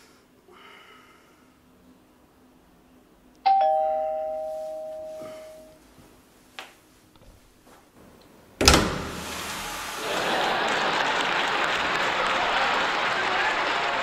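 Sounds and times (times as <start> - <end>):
two-note doorbell chime: 3.5 - 5.8
burst of noise and hiss: 8.6 - 10.8.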